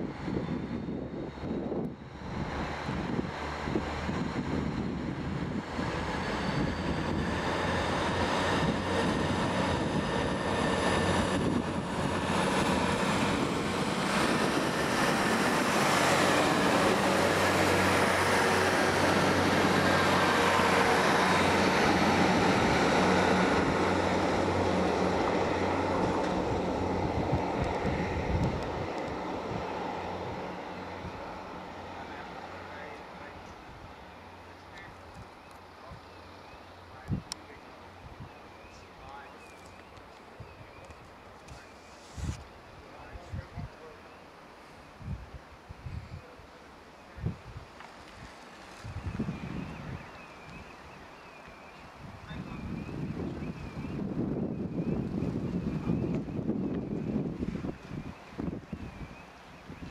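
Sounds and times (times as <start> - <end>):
diesel train engines humming: 0.0 - 40.6.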